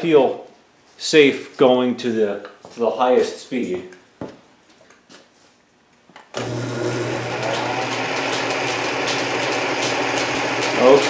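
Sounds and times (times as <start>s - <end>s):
drill press motor hum: 6.3s - 11.0s.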